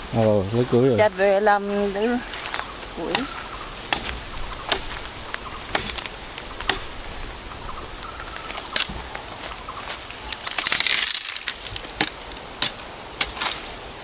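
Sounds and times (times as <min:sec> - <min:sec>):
crunching and rustling: 0:02.1 - 0:07.4, 0:08.0 - 0:14.0
axe chopping wood: 0:03.0 - 0:05.0, 0:05.7 - 0:06.9, 0:11.8 - 0:13.6.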